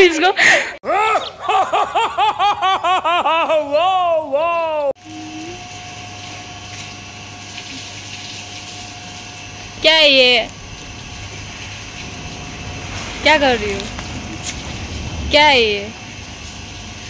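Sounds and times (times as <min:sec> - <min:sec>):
high-pitched laughter: 0:00.8 - 0:04.9
low steady hum: 0:05.0 - 0:17.0.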